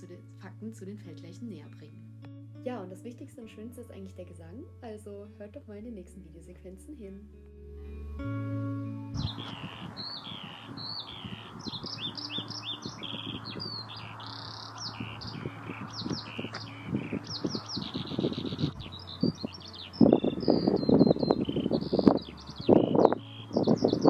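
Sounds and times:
skylark singing: 0:09.1 - 0:24.0
wind buffeting microphone: 0:09.1 - 0:24.0.

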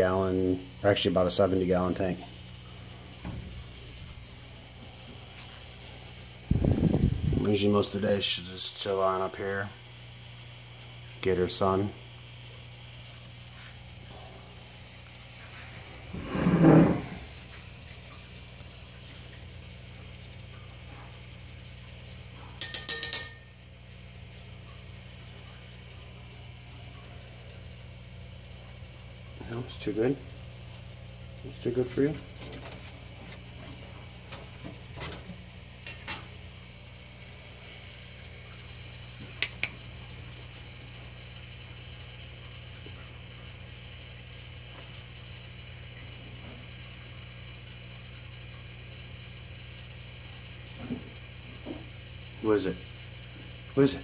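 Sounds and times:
low hum: 0:09.7 - 0:47.1
metallic clinks of tongs: 0:22.6 - 0:23.5
sharp clicks: 0:39.2 - 0:39.8.

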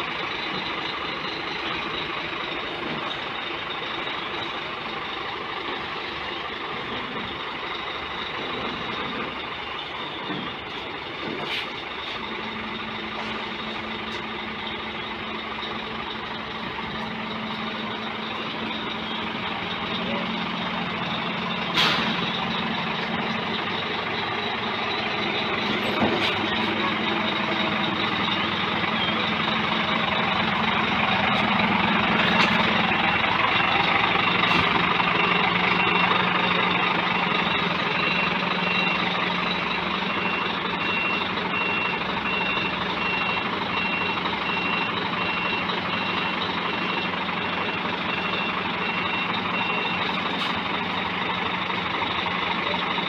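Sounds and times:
diesel truck engine running: 0:00.0 - 0:53.0
reversing alarm beeping: 0:00.0 - 0:53.0.

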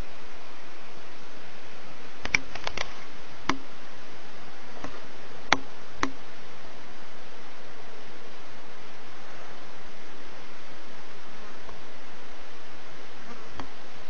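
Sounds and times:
steady hiss: 0:00.0 - 0:14.0
sharp clicks: 0:02.2 - 0:03.6.

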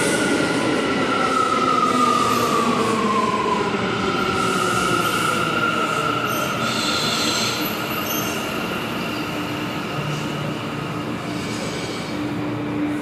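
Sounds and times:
subway train running: 0:00.0 - 0:13.0
wheels squealing on rails: 0:04.2 - 0:10.4.

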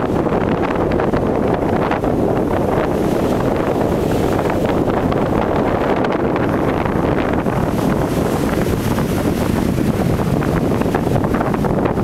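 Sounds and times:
strong wind buffeting microphone: 0:00.0 - 0:12.0
surf breaking on shore: 0:00.0 - 0:12.0.

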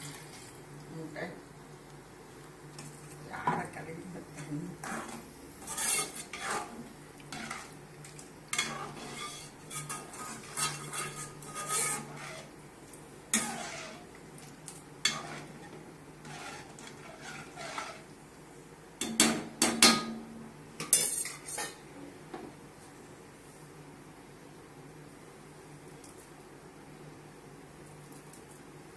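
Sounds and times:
ladle scraping a metal pot: 0:04.8 - 0:12.6, 0:13.3 - 0:18.2.

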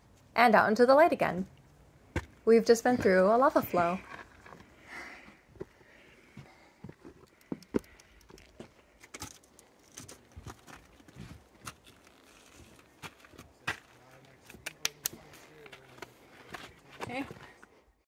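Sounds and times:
hands and shoes scraping rock: 0:08.5 - 0:14.4.

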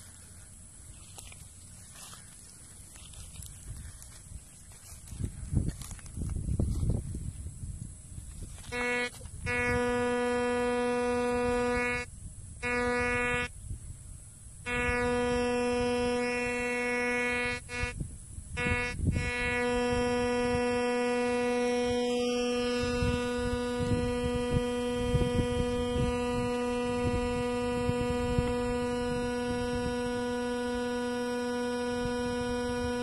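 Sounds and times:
metal detector buzzing tone: 0:08.3 - 0:13.6, 0:14.6 - 0:33.0.

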